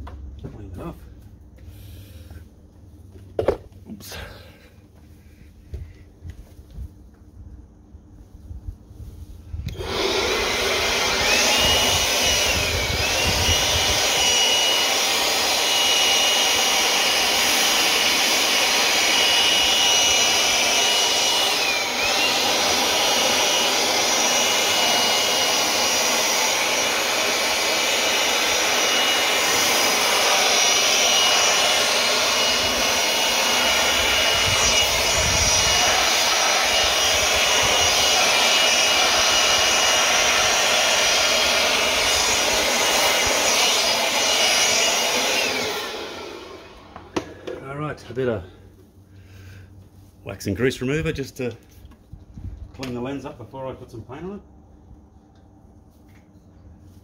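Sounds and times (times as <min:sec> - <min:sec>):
cordless blower whining: 0:09.6 - 0:48.5.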